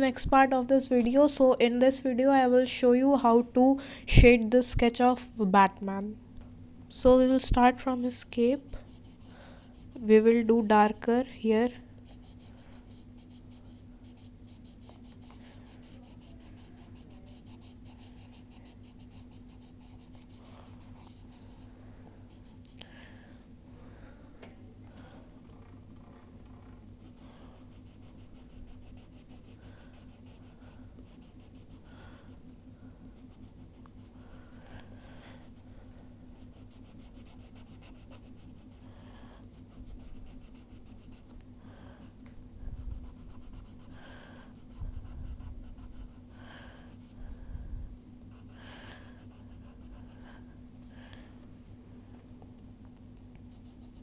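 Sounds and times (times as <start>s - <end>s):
steady low hum: 0.0s - 54.0s
pencil scratching on paper: 8.6s - 10.2s, 12.1s - 21.7s, 27.0s - 32.5s, 33.2s - 35.8s, 36.4s - 41.3s, 42.8s - 47.2s, 48.3s - 50.2s.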